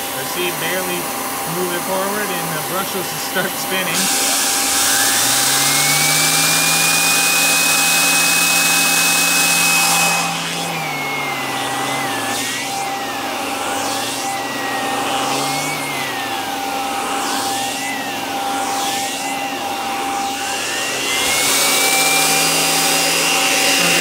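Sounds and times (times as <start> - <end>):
brush whine wavering in pitch: 0.0 - 24.0
vacuum cleaner running: 0.0 - 24.0.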